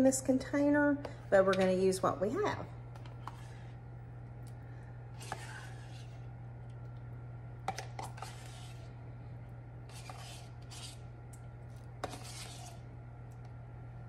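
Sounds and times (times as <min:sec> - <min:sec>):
steady low hum: 0:00.0 - 0:14.0
spoon scraping tub: 0:05.2 - 0:06.2, 0:07.7 - 0:08.9, 0:09.9 - 0:11.1, 0:12.0 - 0:12.9.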